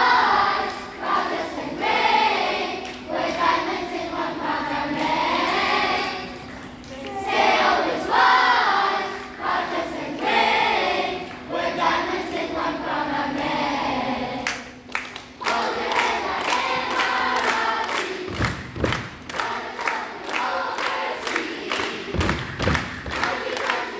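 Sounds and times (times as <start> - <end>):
rhythmic hand claps: 0.0 - 4.0, 4.9 - 7.2, 8.9 - 11.8, 14.4 - 23.9
children's choir singing: 0.0 - 14.8, 15.4 - 23.9.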